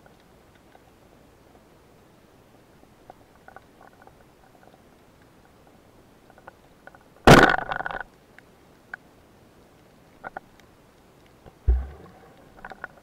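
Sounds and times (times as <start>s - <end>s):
speargun firing underwater: 11.7s - 12.7s.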